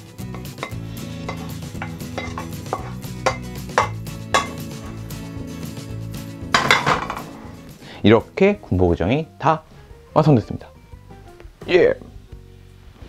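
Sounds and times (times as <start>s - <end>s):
wooden spatula scraping a wok: 0.2s - 5.3s.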